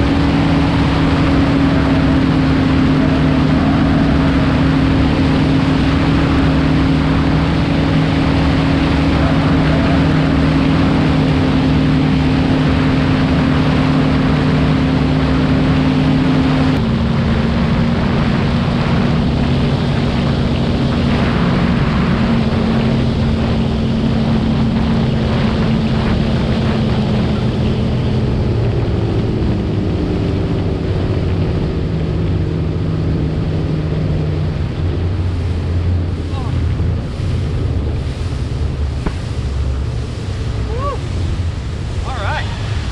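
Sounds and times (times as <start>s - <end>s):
outboard engines at high speed: 0.0s - 42.9s
rush of wind and water: 0.0s - 42.9s.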